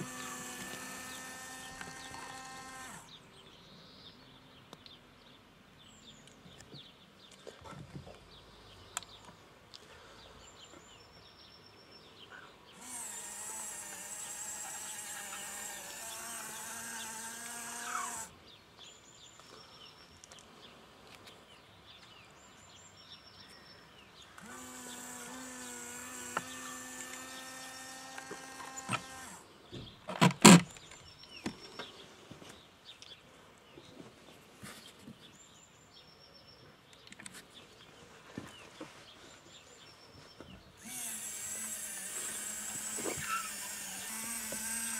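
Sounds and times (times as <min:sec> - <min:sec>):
small electric motor whine: 0:00.0 - 0:03.2, 0:12.8 - 0:18.4, 0:24.3 - 0:29.4, 0:40.8 - 0:44.9
faint birds chirping: 0:00.0 - 0:44.9.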